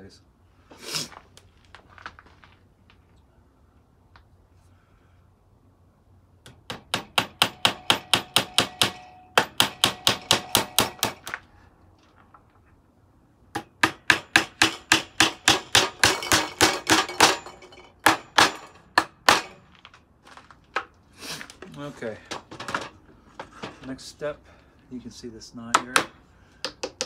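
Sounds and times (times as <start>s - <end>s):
hammer striking nails into wood: 6.4s - 11.4s, 13.5s - 19.6s, 25.7s - 27.0s.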